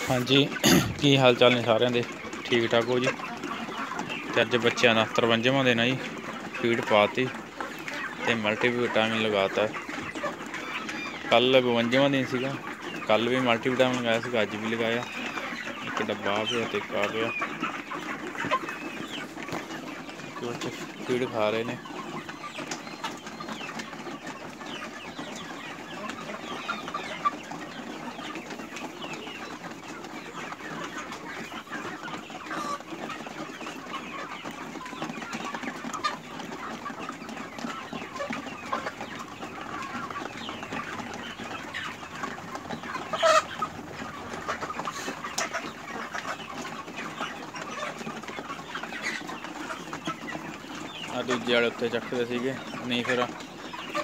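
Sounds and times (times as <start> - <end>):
chickens clucking and cheeping: 0.0 - 54.0.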